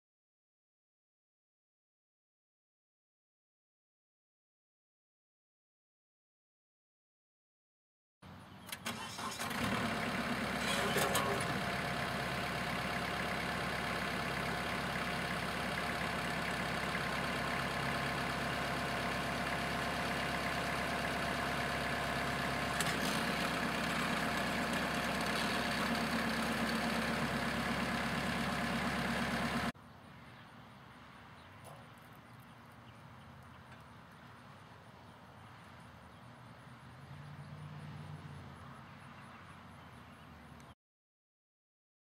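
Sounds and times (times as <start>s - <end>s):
tractor diesel engine idling: 8.7s - 29.8s.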